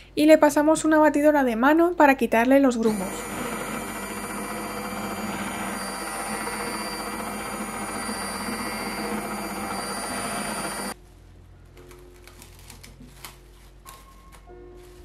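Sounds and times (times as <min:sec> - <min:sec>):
immersion blender running: 0:02.9 - 0:11.0.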